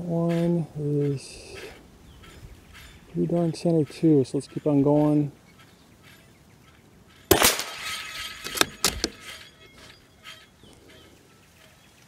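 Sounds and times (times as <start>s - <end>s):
rifle shot crack: 7.3s - 8.0s
rifle bolt clicks: 8.4s - 9.2s.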